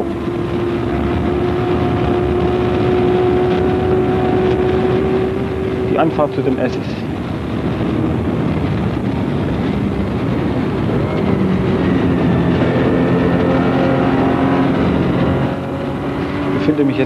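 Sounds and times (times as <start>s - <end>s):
racing car engine at speed: 0.0s - 17.0s.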